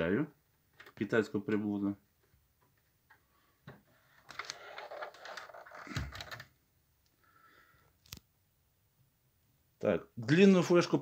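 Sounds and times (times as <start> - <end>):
plastic clattering and scraping: 2.2 - 6.6.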